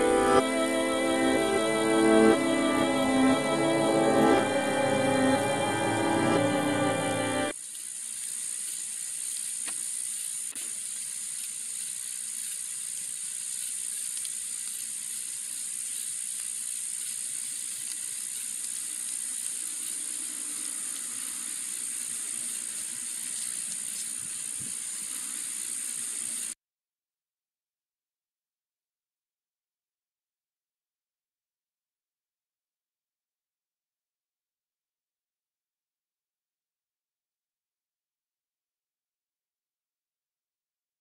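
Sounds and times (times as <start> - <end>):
music: 0.0 - 7.5
high-pitched hiss: 0.0 - 26.6.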